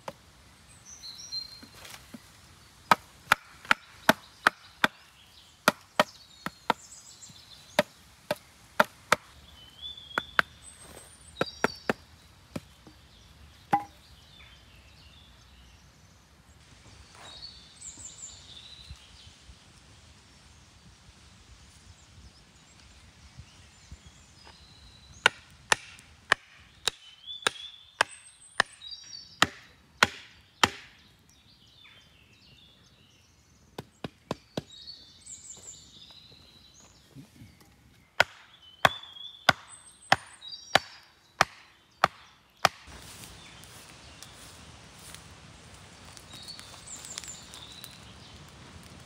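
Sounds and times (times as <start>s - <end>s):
birds chirping: 0.0s - 19.5s, 22.0s - 49.0s
hatchet chopping wood: 2.9s - 6.8s, 7.8s - 9.4s, 10.2s - 10.6s, 11.4s - 13.0s, 13.7s - 14.0s, 25.2s - 28.8s, 29.4s - 31.0s, 38.2s - 42.9s.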